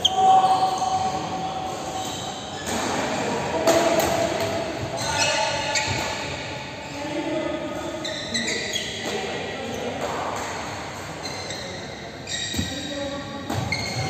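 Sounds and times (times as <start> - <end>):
players calling and talking: 0.0 - 14.0
rackets hitting shuttlecock: 3.6 - 4.7.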